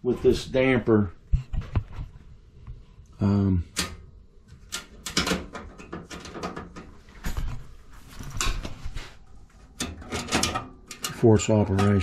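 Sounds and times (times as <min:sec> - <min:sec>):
rustling: 0:06.3 - 0:10.1.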